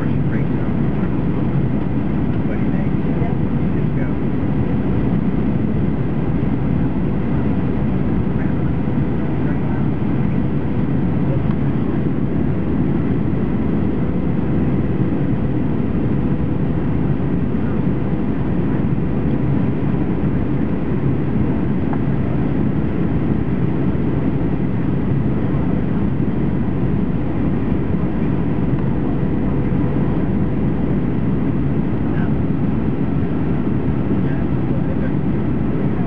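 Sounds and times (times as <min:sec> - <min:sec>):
airplane cabin engine roar: 0:00.0 - 0:36.0
faint steady whine: 0:00.0 - 0:36.0.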